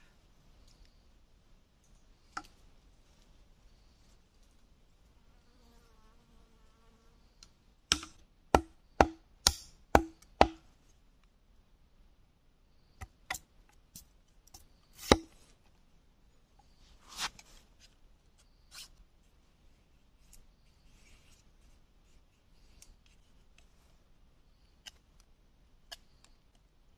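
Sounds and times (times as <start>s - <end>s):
knife chopping bamboo: 7.9s - 10.7s, 15.0s - 15.4s.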